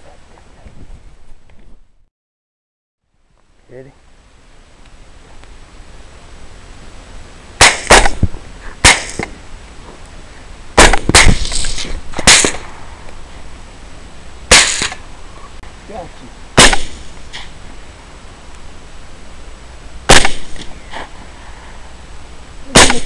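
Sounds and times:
rifle shots: 7.6s - 9.3s, 10.8s - 12.8s, 14.5s - 15.0s, 16.6s - 17.5s, 20.1s - 20.7s, 22.7s - 23.0s.

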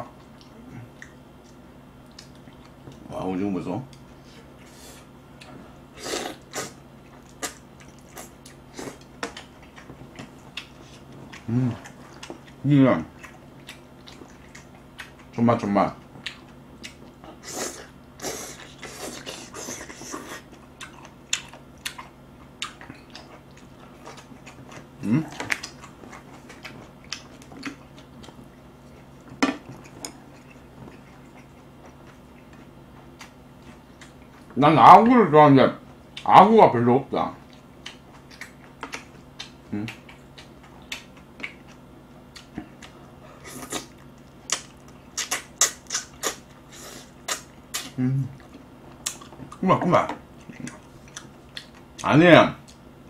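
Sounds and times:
chewing noodles: 6.2s - 15.4s, 16.0s - 34.5s.

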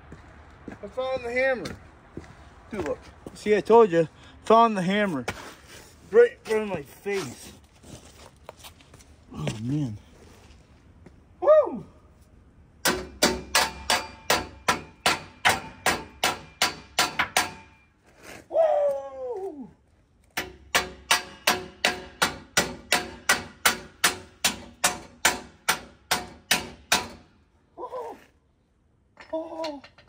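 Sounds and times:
hammer striking metal: 12.8s - 17.9s, 20.4s - 27.3s.

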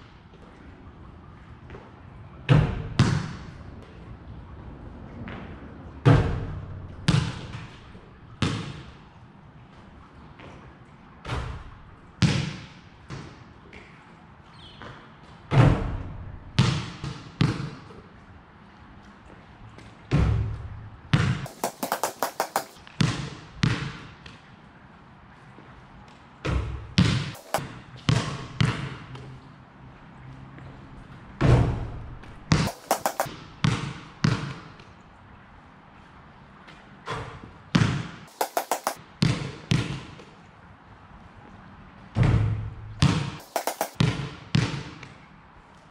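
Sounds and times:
basketball bouncing on concrete: 2.5s - 3.4s, 7.1s - 7.7s, 21.1s - 24.0s, 27.0s - 29.0s, 32.5s - 34.6s, 37.8s - 40.2s, 42.3s - 45.1s.

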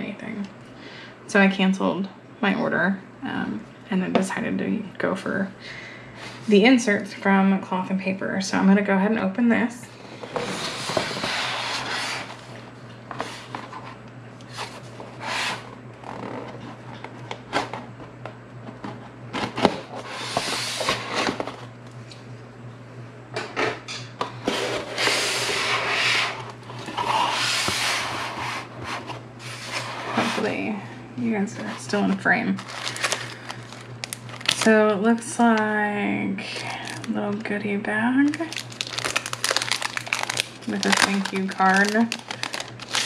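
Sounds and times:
cardboard box scraping: 10.3s - 12.4s, 24.4s - 30.6s.

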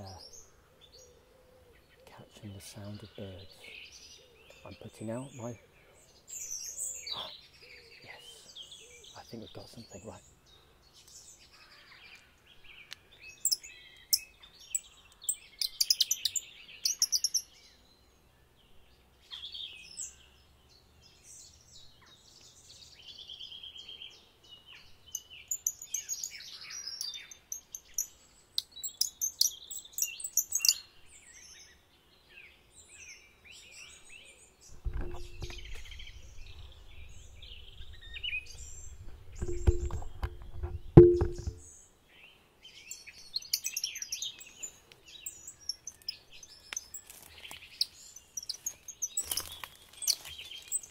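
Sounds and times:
songbirds singing: 0.0s - 50.9s
low rumble with faint hum: 34.8s - 41.6s.

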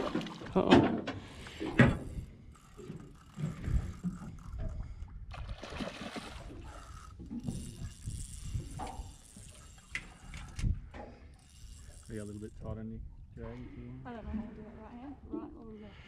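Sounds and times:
water noise: 0.0s - 16.0s
fishing reel ratcheting: 1.8s - 4.7s, 6.4s - 12.7s.

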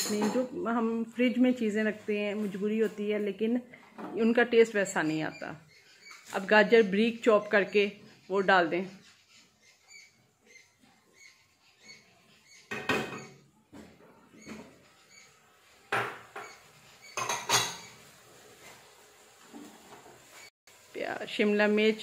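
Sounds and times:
spatula scraping a wok: 14.7s - 20.5s.

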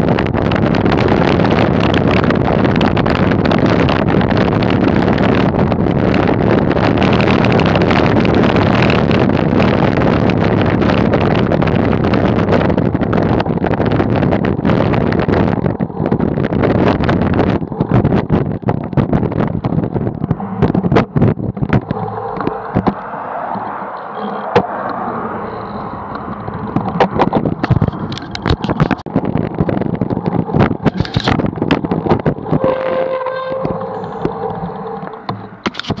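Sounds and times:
wind noise: 0.0s - 36.0s
bicycle knocks and rattles: 26.1s - 36.0s.

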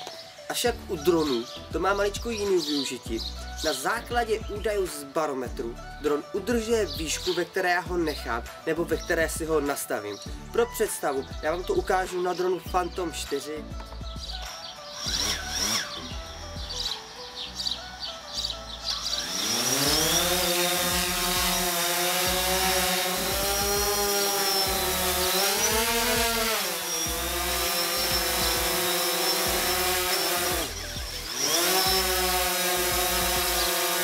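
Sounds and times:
drone propeller motors whining: 15.0s - 17.1s, 18.4s - 34.0s.

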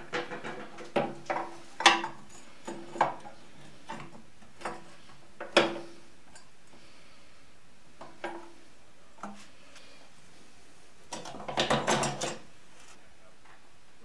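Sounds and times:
metal tools clicking and clattering: 11.1s - 12.5s.

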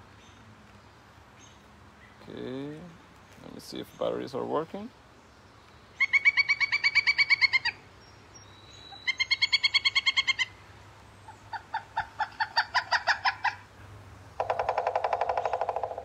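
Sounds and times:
woodpecker call from a speaker: 6.0s - 7.8s, 8.9s - 10.5s, 14.4s - 16.0s.

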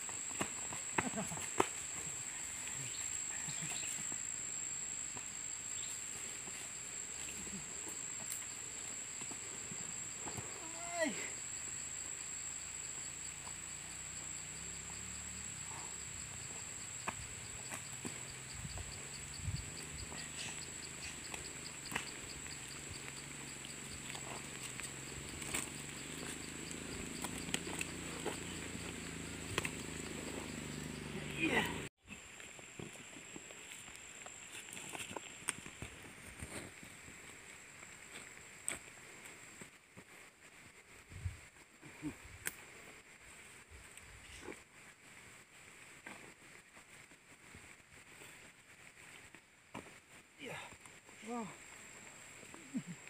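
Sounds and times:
hooves and footsteps on dirt: 0.0s - 10.8s, 12.8s - 41.8s, 42.7s - 53.0s
high-pitched insect drone: 0.0s - 35.2s
footsteps on dirt track: 16.3s - 40.3s.

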